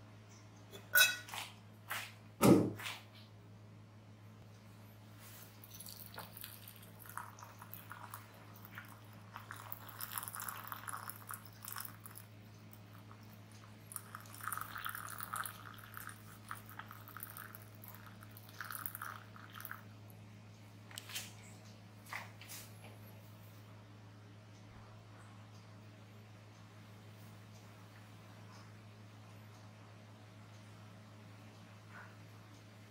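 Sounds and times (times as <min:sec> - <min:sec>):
steady low hum: 0:00.0 - 0:32.9
water pouring into glass pitcher: 0:05.5 - 0:13.1, 0:13.9 - 0:19.8.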